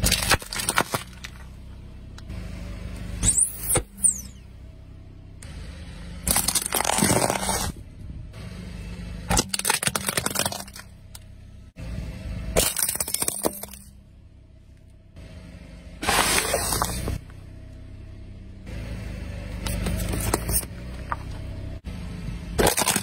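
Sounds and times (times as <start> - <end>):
car tyre crushing plastic toys: 0.0 - 2.2, 6.2 - 7.8, 9.3 - 11.3, 12.5 - 14.0, 16.0 - 17.3, 19.6 - 21.6, 22.5 - 23.0.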